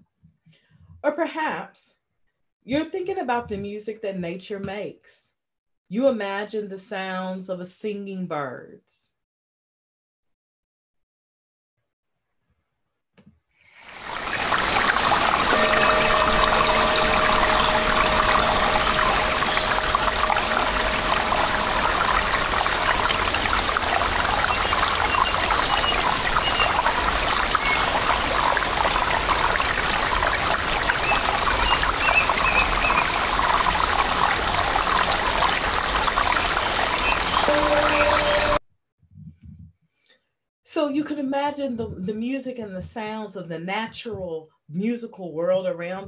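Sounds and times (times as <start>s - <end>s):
stream trickling: 13.8s - 38.6s
birds chirping: 14.3s - 28.6s
bird trill: 14.9s - 23.5s.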